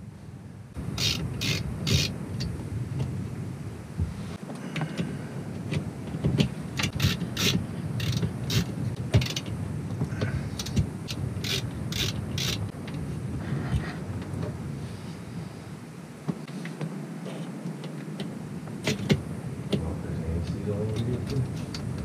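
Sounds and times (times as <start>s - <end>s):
screwdriver clicking on screws: 1.0s - 2.1s, 6.8s - 9.5s, 10.6s - 12.6s.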